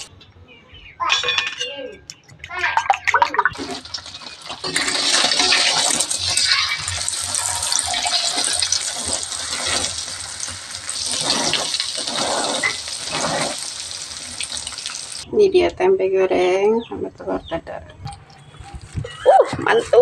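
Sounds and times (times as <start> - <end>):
egg sizzling in hot oil: 3.5 - 15.2
spatula working in pan: 3.5 - 15.2.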